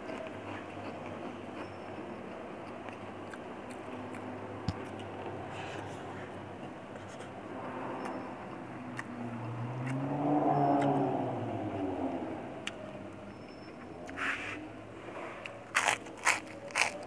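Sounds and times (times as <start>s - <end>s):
soft chewing: 0.0s - 7.4s, 13.6s - 17.0s.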